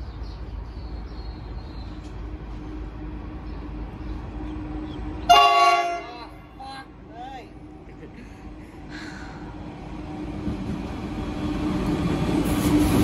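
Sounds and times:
locomotive horn blast: 5.2s - 6.7s.

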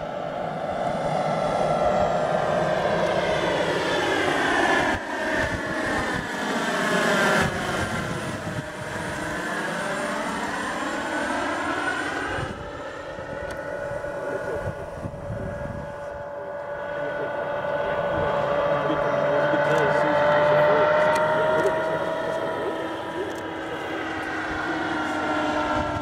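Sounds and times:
model helicopter turbine whine: 0.0s - 26.0s.

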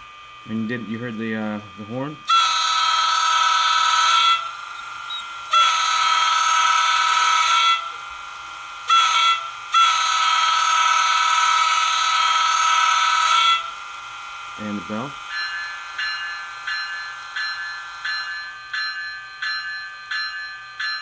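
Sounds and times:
train horn blasts: 2.3s - 4.6s, 5.5s - 8.0s, 8.9s - 13.8s.

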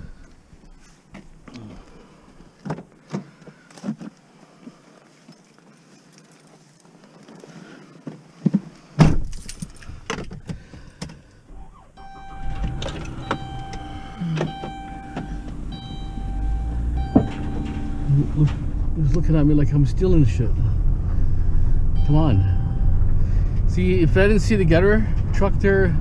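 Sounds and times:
keys jangling: 9.2s - 9.9s
steady electronic tone: 12.0s - 18.8s, 21.9s - 23.5s
vehicle engine running: 12.0s - 26.0s.

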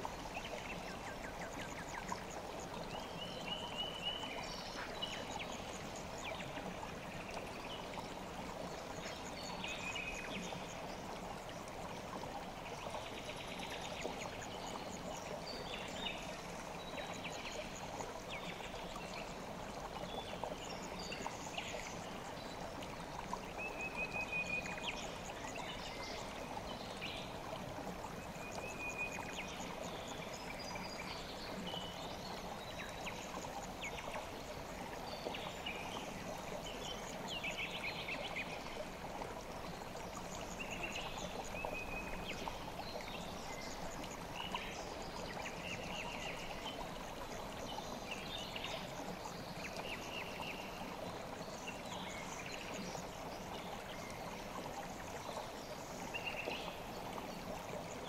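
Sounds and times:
river water flowing: 0.0s - 58.0s.

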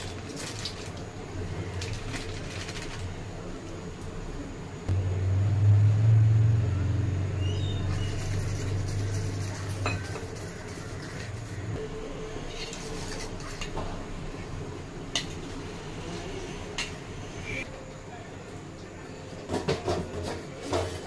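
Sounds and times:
fork whisking in a steel bowl: 7.9s - 11.6s, 12.5s - 13.7s.

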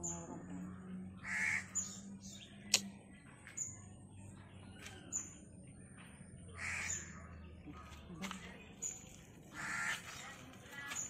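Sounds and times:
harsh bird calls: 0.0s - 2.8s, 4.8s - 8.1s, 8.8s - 11.0s
birds chirping: 0.0s - 11.0s.

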